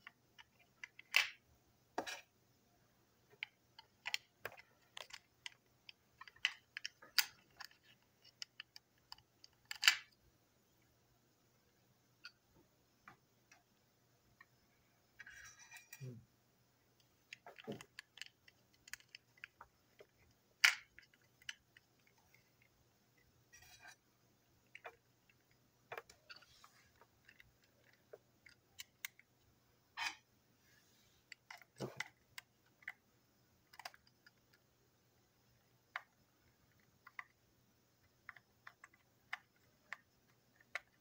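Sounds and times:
plastic toy parts clicking: 0.0 - 1.4, 3.3 - 10.2, 17.3 - 23.9, 24.6 - 29.3, 31.3 - 33.0, 33.6 - 34.6, 35.9 - 37.4, 38.0 - 41.0.

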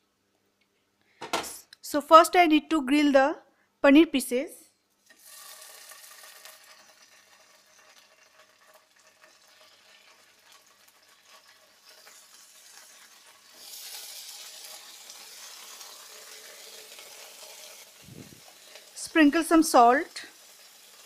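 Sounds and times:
cheese sizzling in oil: 5.0 - 21.0.

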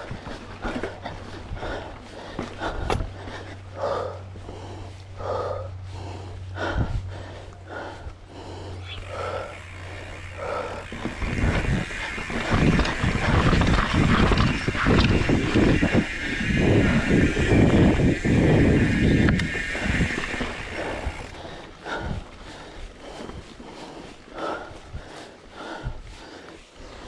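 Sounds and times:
tyres rattling over dirt: 0.0 - 3.7, 8.8 - 22.4
person breathing heavily: 0.0 - 27.0
wind on microphone: 10.3 - 21.4.

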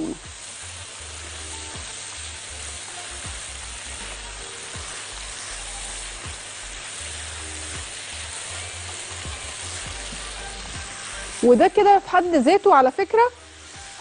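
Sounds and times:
vegetables sizzling in a wok: 0.0 - 14.0
spatula stirring in a wok: 0.1 - 14.0.

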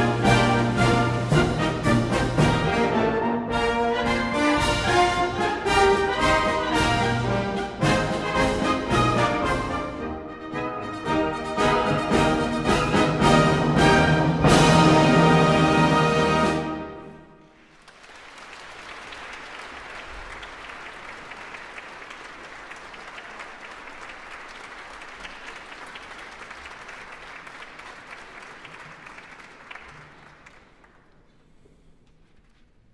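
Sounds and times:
audience applauding: 17.6 - 31.4.

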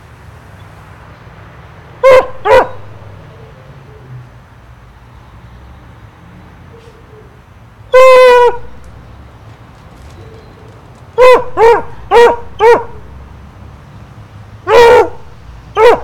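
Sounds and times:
dog barking: 2.0 - 3.3, 11.2 - 13.2, 14.6 - 16.0.

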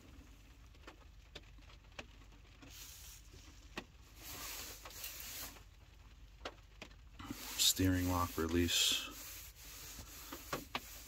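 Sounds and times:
rustling: 2.5 - 11.0.

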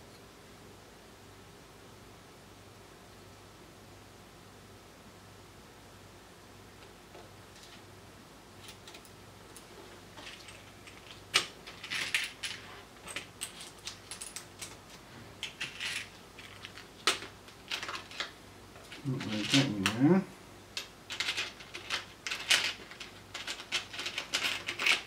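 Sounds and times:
plastic parts box clicking and rattling: 15.4 - 18.3, 21.1 - 25.0.

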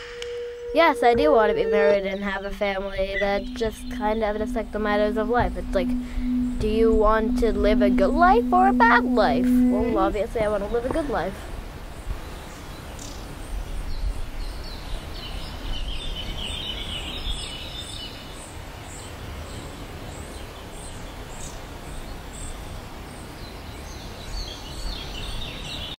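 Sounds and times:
insect chirping: 0.0 - 11.2
low rumble: 0.0 - 11.5
birds calling: 0.0 - 18.0.

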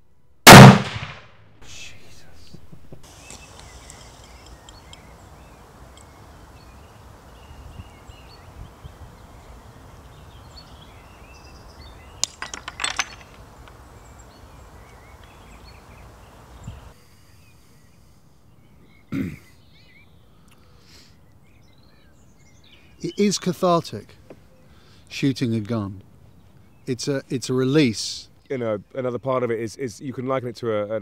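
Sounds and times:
outdoor background noise: 0.0 - 31.0
faint bird chirps: 2.0 - 12.3, 13.2 - 23.3
clay fragments clinking: 12.0 - 14.0.

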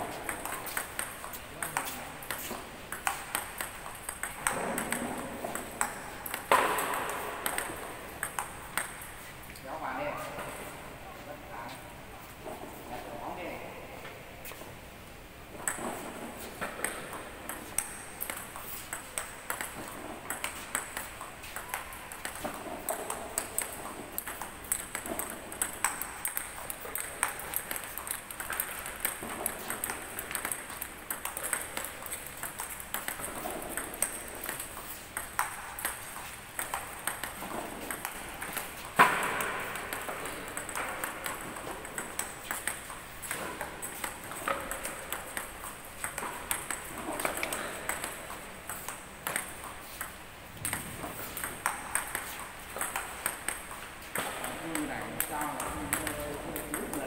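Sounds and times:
table tennis ball clicks: 0.2 - 9.1, 15.6 - 57.0.

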